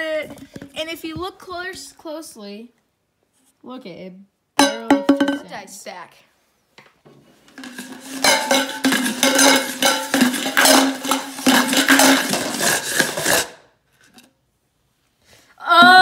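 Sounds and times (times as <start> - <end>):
dice rattling in a can: 7.6 - 13.6.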